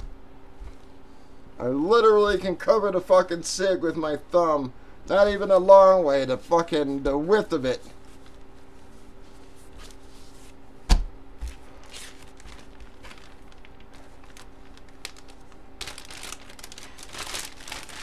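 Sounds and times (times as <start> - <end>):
faint steady hum: 0.0 - 18.0
fabric and bag rustling: 11.4 - 18.0.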